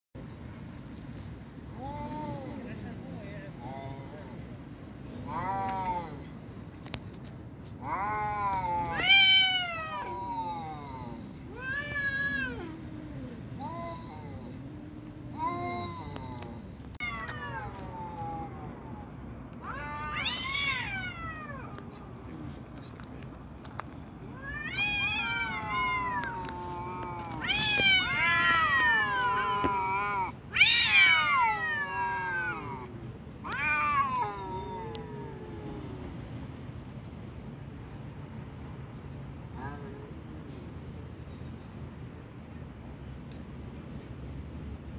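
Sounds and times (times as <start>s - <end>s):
cats yowling: 7.8s - 22.0s, 24.3s - 36.2s.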